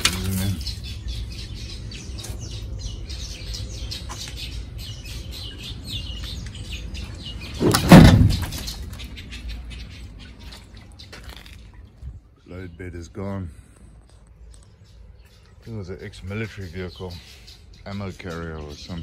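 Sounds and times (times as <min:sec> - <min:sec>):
small birds chirping: 0:00.0 - 0:19.0
loud thump with a scrape: 0:07.6 - 0:08.8.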